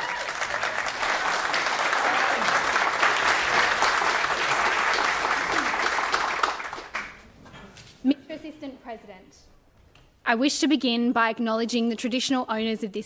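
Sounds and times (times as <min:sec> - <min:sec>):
people clapping: 0:00.0 - 0:07.4.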